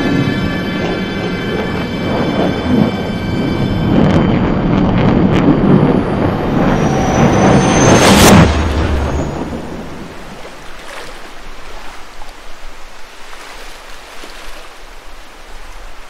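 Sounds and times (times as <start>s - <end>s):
soft wash of waves: 6.0s - 16.0s
waves crashing on beach: 8.4s - 16.0s.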